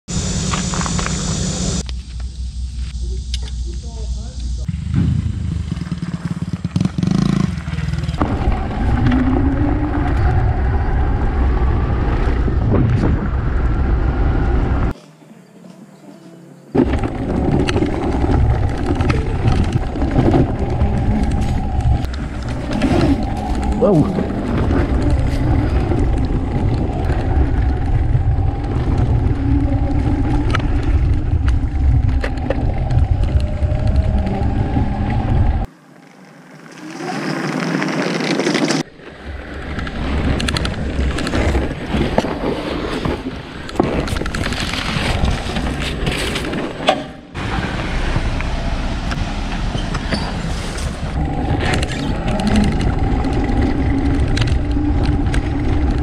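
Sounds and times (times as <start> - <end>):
wind rumble: 0.1 - 15.0, 16.8 - 35.7, 37.3 - 56.0
motorcycle passing by: 4.7 - 14.9
tyre noise over dirt: 16.7 - 35.0.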